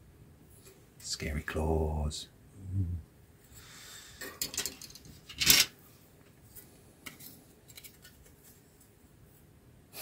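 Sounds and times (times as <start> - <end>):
plastic parts clicking and rattling: 4.4 - 5.7.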